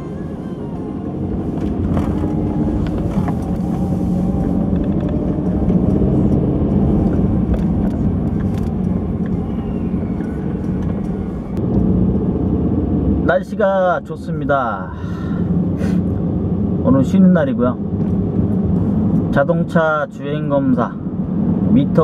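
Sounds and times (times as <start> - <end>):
car engine and road rumble: 0.0 - 22.0
faint engine whine: 0.0 - 22.0.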